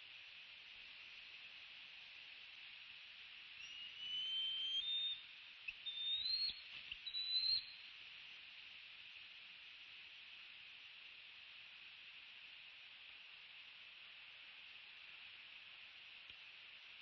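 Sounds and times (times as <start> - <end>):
microphone hiss: 0.0 - 17.0
bird whistled call: 3.6 - 7.8.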